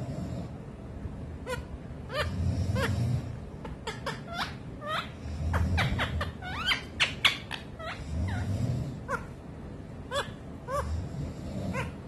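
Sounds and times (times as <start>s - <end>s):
parakeet chirping and squeaking: 1.4s - 3.0s, 3.6s - 8.5s, 9.1s - 9.4s, 10.1s - 10.9s.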